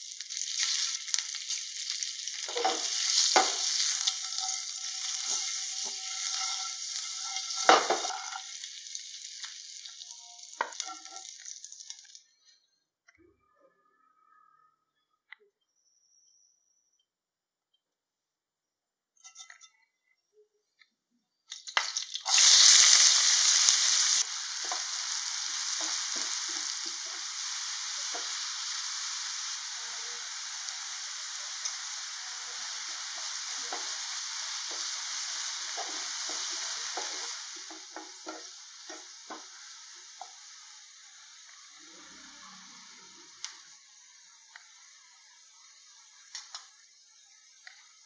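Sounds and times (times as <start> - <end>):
onions sizzling in hot oil: 0.0 - 12.3, 21.5 - 48.0
spoon stirring and scraping pan: 0.6 - 8.8, 9.4 - 11.6, 19.2 - 19.8, 24.2 - 29.6, 30.5 - 40.6.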